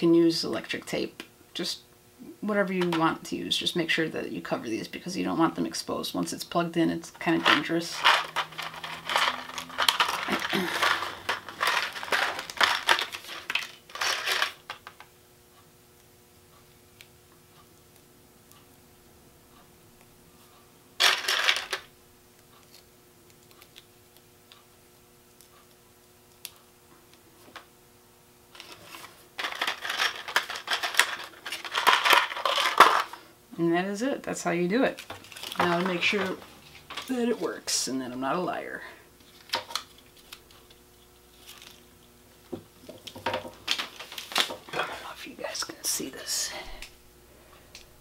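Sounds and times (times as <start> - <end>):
paper card rustling and crackling: 7.2 - 15.0, 21.0 - 21.9, 28.5 - 33.2, 34.9 - 37.4, 39.2 - 41.9, 42.8 - 45.0
plastic blister pack crinkling: 7.3 - 15.0, 21.0 - 21.9, 28.5 - 33.2, 34.9 - 37.4, 39.2 - 42.0, 42.8 - 45.1.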